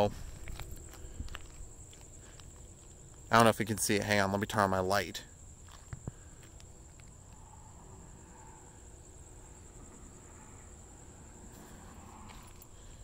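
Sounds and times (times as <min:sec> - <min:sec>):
crickets trilling: 0:00.0 - 0:13.0
faint low rumble: 0:05.2 - 0:13.0.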